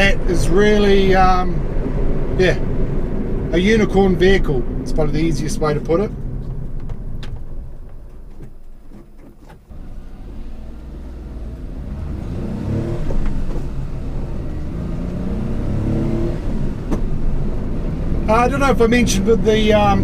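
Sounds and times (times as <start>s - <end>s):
truck engine revving: 9.7s - 20.0s.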